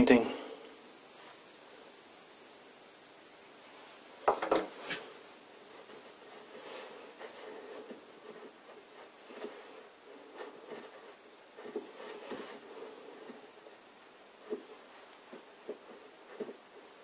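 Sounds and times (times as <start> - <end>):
fingertip rubbing paint on steel: 4.9 - 17.0.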